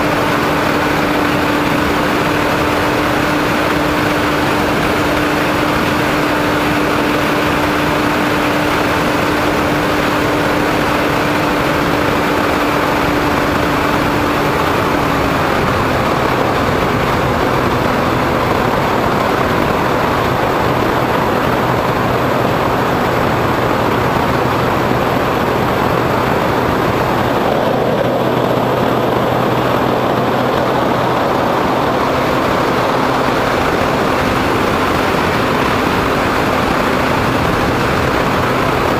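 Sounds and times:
motor and propeller drone: 0.0s - 38.9s
wind rushing past microphone: 0.0s - 38.9s.

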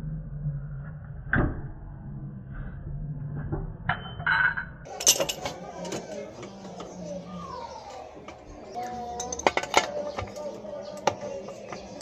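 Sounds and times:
metal clinks: 3.9s - 5.5s.

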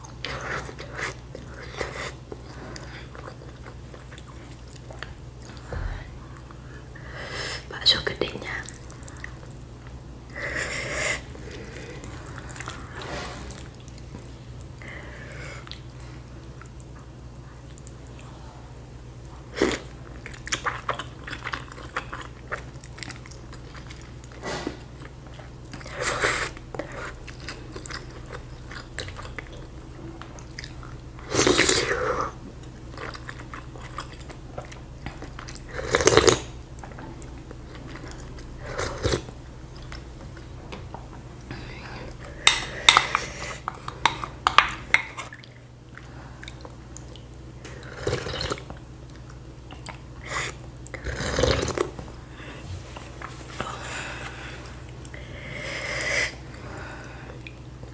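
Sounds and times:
person chewing: 0.0s - 7.0s, 8.5s - 40.5s, 41.4s - 57.9s
steady low hum: 0.0s - 57.9s
slurping noodles: 50.2s - 51.9s.

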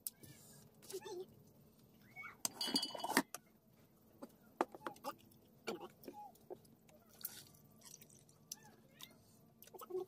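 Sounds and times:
dishes clicking and knocking: 2.5s - 3.4s.

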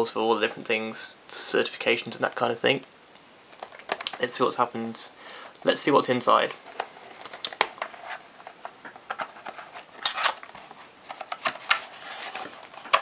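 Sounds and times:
scraping rustles: 6.3s - 13.0s
cardboard box being opened: 6.6s - 13.0s.

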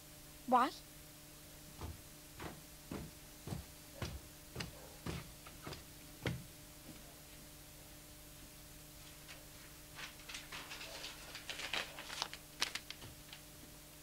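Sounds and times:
faint steady hum: 0.0s - 14.0s
footsteps on carpeted stairs: 1.6s - 7.1s.

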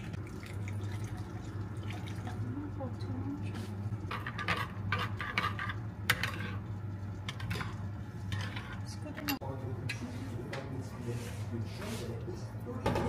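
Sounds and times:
steady low hum: 0.0s - 13.0s
spoon scraping a ceramic bowl: 4.0s - 6.7s, 7.3s - 9.3s.

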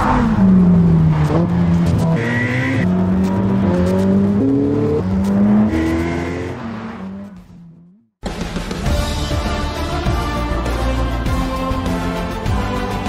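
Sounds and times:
sports car engine accelerating: 0.0s - 8.2s.

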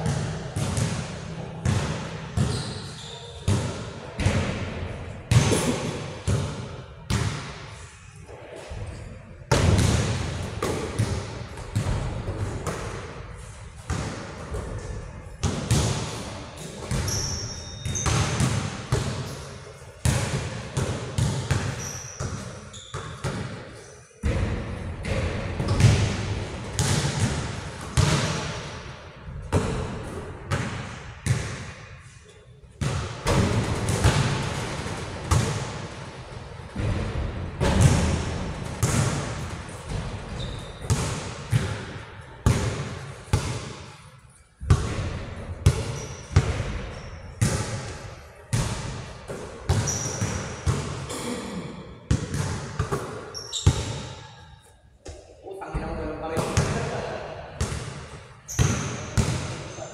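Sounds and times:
ball bouncing on hard court: 0.0s - 4.7s, 5.3s - 7.6s, 9.5s - 13.1s, 13.8s - 19.4s, 20.0s - 23.6s, 24.2s - 28.7s, 29.4s - 31.7s, 32.8s - 35.8s, 36.8s - 43.9s, 44.6s - 51.1s, 52.1s - 54.2s, 57.6s - 59.6s
short high squeaks: 53.4s - 53.7s.

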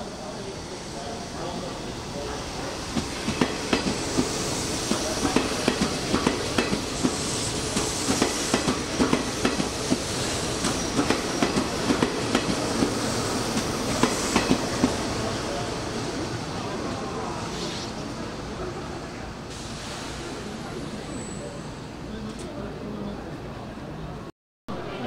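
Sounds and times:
train rumbling: 0.2s - 22.4s
train wheels clicking over rails: 2.9s - 15.1s.

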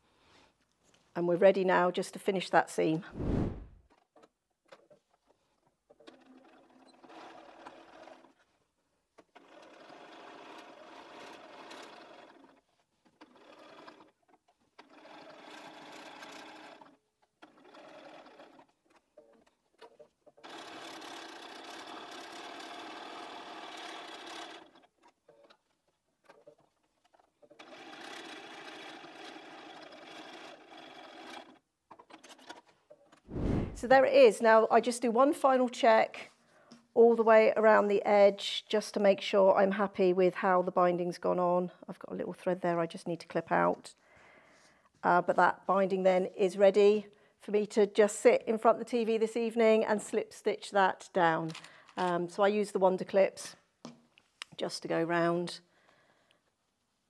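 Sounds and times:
sewing machine stitching: 3.2s - 8.6s, 9.2s - 33.8s.

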